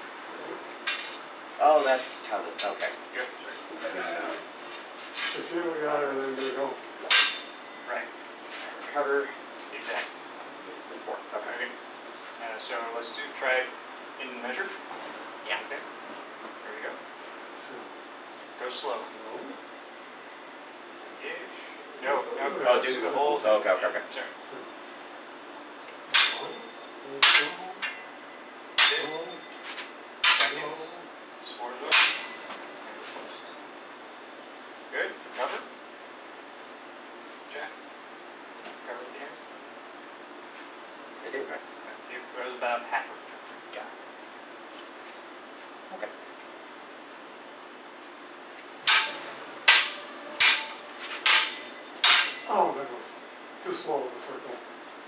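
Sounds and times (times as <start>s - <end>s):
sabre blades clashing: 7.1s - 7.6s, 26.1s - 26.6s, 27.2s - 28.0s, 28.8s - 29.2s, 30.2s - 30.7s, 31.9s - 32.4s, 48.8s - 52.5s.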